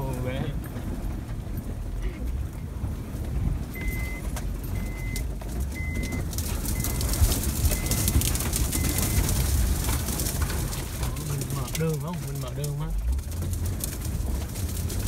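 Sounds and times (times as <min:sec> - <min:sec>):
engine and tyre rumble: 0:00.0 - 0:15.0
dashboard warning chime: 0:03.7 - 0:09.4
grass scraping against car: 0:05.6 - 0:15.0.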